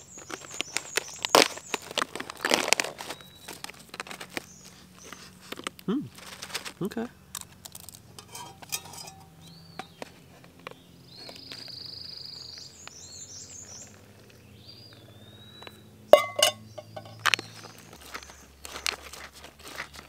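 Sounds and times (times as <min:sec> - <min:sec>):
birds singing: 0:00.0 - 0:05.7, 0:08.0 - 0:20.0
cookware clinking: 0:08.2 - 0:09.4, 0:16.1 - 0:17.2.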